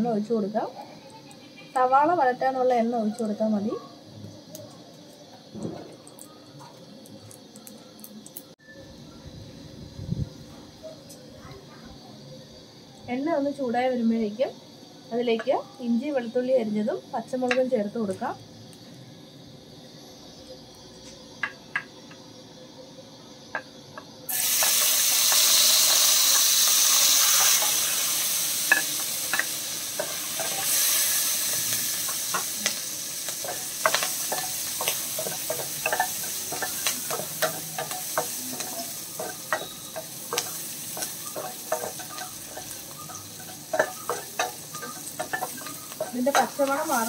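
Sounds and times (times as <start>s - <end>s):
food sizzling in hot oil: 0.0s - 8.8s, 23.4s - 47.0s.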